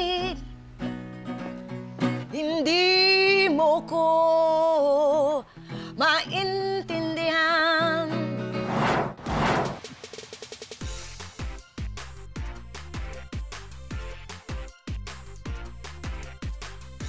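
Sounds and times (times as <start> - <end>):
woman singing blues: 0.0 - 0.5, 2.2 - 8.4
strummed acoustic guitar: 0.8 - 2.4.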